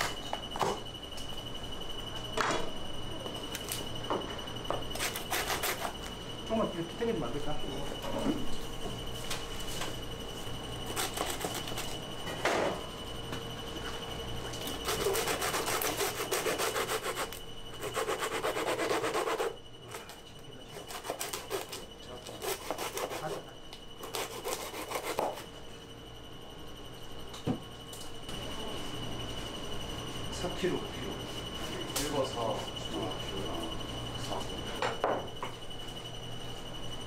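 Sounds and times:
blade sawing through fish: 0:14.8 - 0:19.6, 0:20.7 - 0:23.4.

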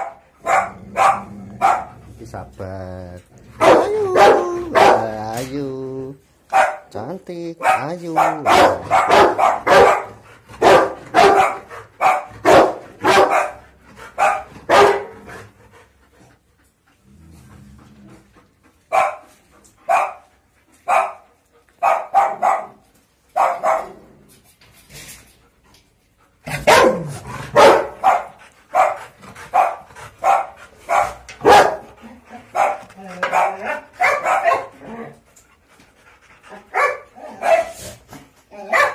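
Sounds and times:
dog barking: 0:00.0 - 0:01.9, 0:03.6 - 0:05.2, 0:06.5 - 0:06.9, 0:07.6 - 0:13.6, 0:14.2 - 0:15.2, 0:18.9 - 0:19.2, 0:19.9 - 0:20.2, 0:20.9 - 0:21.2, 0:21.8 - 0:24.0, 0:26.5 - 0:31.9, 0:32.5 - 0:34.7, 0:36.7 - 0:37.8, 0:38.6 - 0:38.9.

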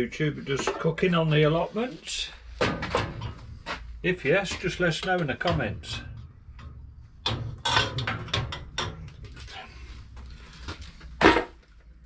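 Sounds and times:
metal pots and pans knocking: 0:04.5 - 0:09.2.

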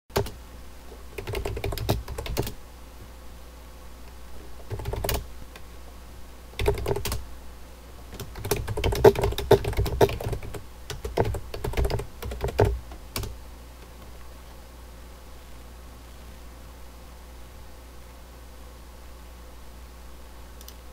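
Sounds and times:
typing on computer keyboard: 0:00.1 - 0:00.4, 0:01.2 - 0:02.6, 0:04.7 - 0:05.2, 0:06.6 - 0:07.2, 0:08.2 - 0:13.4.

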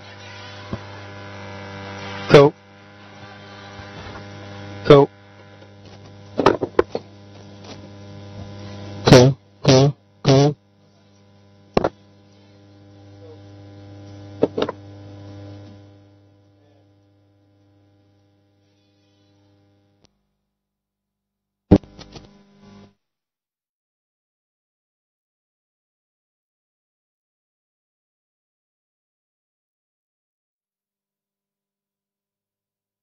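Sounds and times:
loud pitched bursts over speakers: 0:00.0 - 0:05.5, 0:08.6 - 0:10.6
electrical mains hum: 0:00.0 - 0:20.4, 0:21.7 - 0:23.0.

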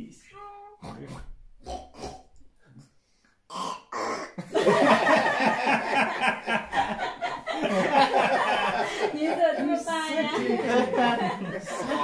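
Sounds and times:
people laughing loudly: 0:04.4 - 0:12.0.

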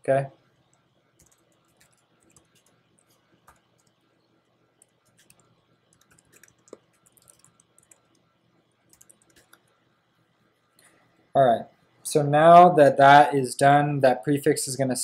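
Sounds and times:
keyboard keystrokes clicking: 0:01.2 - 0:04.0, 0:04.8 - 0:08.2, 0:08.9 - 0:09.7.

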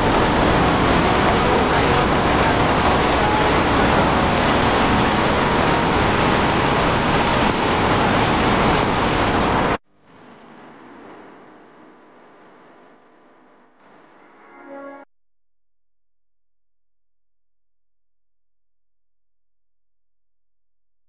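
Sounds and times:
wind rushing over microphone: 0:00.0 - 0:09.8
motorbike road and engine noise: 0:00.0 - 0:12.6.

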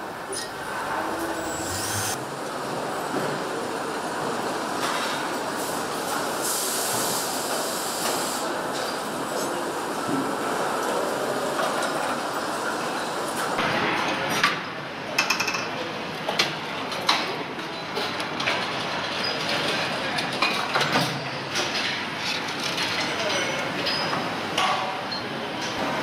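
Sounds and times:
machine hiss and hum: 0:00.0 - 0:04.8, 0:05.4 - 0:09.8.

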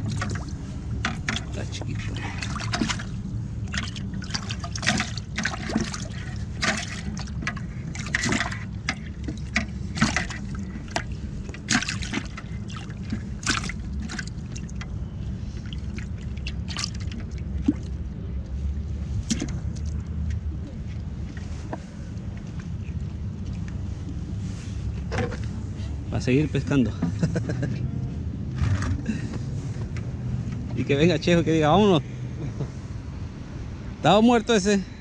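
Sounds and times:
fish splashing in a bucket: 0:00.0 - 0:18.1, 0:19.2 - 0:20.5
steady low rumble: 0:00.0 - 0:35.0.

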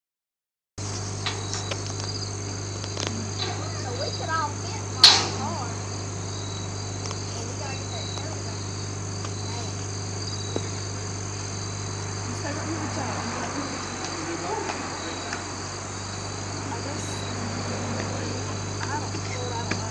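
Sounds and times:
crickets chirring: 0:00.8 - 0:19.9
low steady hum: 0:00.8 - 0:19.9
sharp ringing metal clank: 0:05.0 - 0:05.7.

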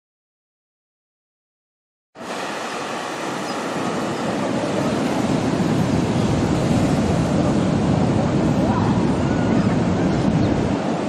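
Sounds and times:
surf washing onto beach: 0:02.2 - 0:11.0
wind on microphone: 0:02.2 - 0:11.0.

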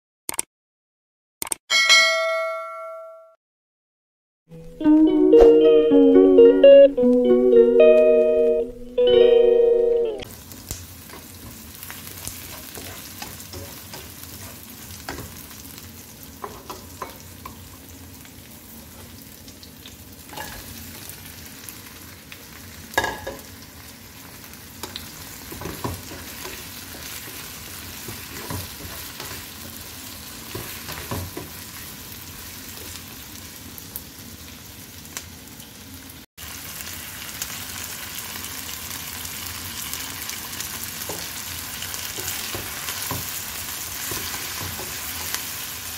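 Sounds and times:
food sizzling in frying pan: 0:10.3 - 0:45.9
spatula scraping and tapping pan: 0:12.2 - 0:15.4, 0:28.0 - 0:29.4.

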